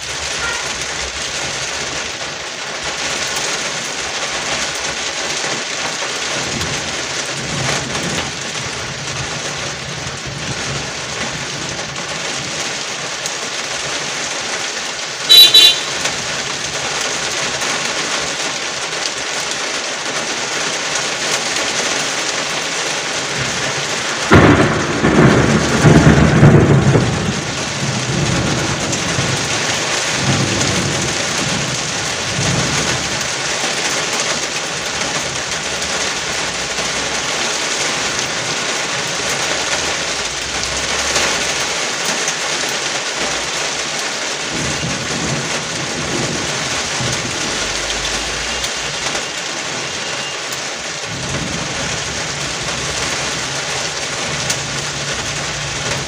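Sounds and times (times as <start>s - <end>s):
heavy rain on street and window: 0.0s - 56.0s
car horn beep: 0.4s - 0.7s, 15.3s - 16.1s, 48.2s - 50.5s
low rumble: 46.8s - 49.1s.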